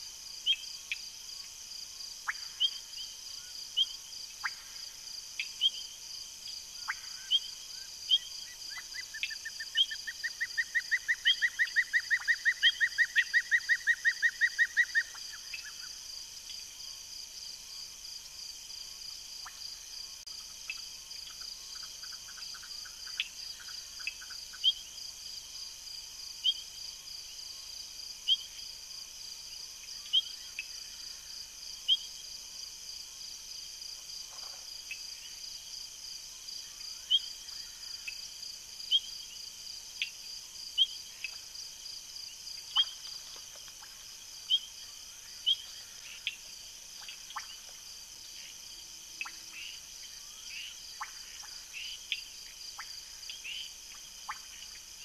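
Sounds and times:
loud short frog chirp: 0:50.5 - 0:53.7.

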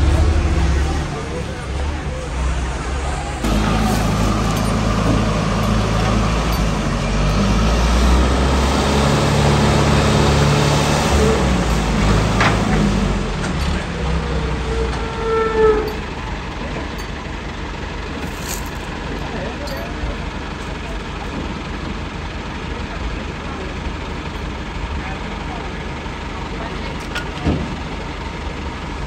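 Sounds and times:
heavy diesel engine revving: 0:00.0 - 0:29.0
high-pitched squeal: 0:14.0 - 0:16.4
short tonal whines: 0:14.2 - 0:16.3.

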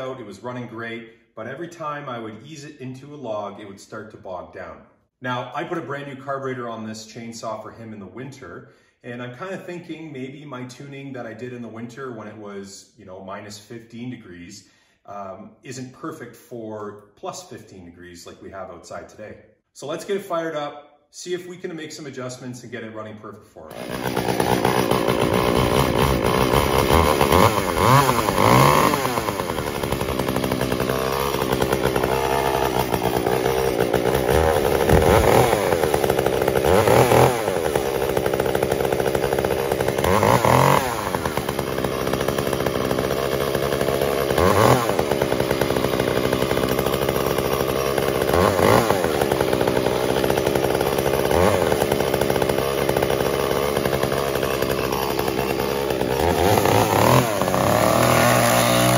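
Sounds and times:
chainsaw cutting wood: 0:23.7 - 0:58.9.

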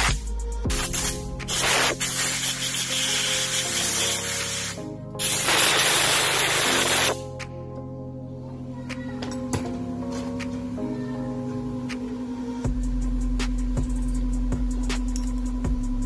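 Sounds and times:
compressed air blow gun hissing: 0:00.0 - 0:07.2.

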